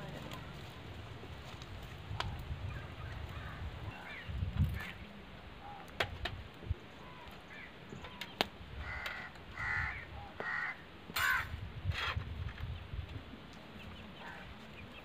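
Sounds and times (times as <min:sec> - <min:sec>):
crow cawing: 0:08.8 - 0:11.6.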